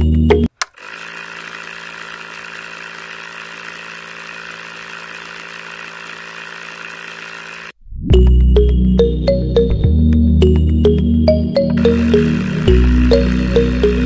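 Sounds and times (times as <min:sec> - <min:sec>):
small electric motor whirring: 0:00.6 - 0:07.8, 0:11.8 - 0:14.0
background music: 0:08.1 - 0:14.0.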